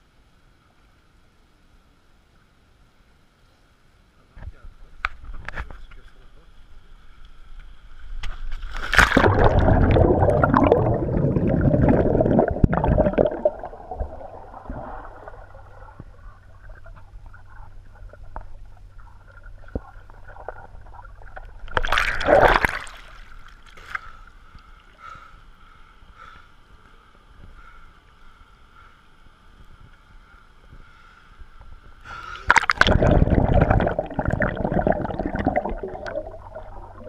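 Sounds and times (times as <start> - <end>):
faint underwater hum: 0.0 - 37.0
water splashing and bubbling: 8.8 - 23.9, 32.4 - 37.0.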